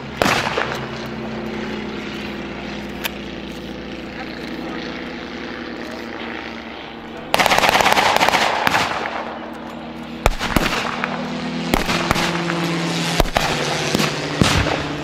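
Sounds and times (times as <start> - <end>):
engine droning: 0.0 - 15.0
machine-gun burst: 7.3 - 9.2
single gunshots: 7.4 - 9.2, 10.2 - 11.1, 11.7 - 12.4, 13.2 - 14.9.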